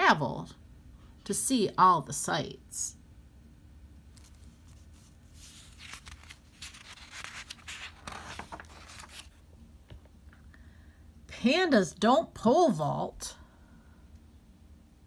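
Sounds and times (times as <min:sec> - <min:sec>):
book pages turning: 0:04.1 - 0:09.4.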